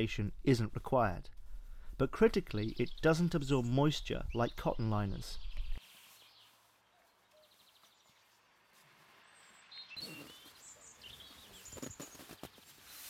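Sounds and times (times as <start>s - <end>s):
birds chirping: 2.0s - 8.4s, 9.3s - 13.0s.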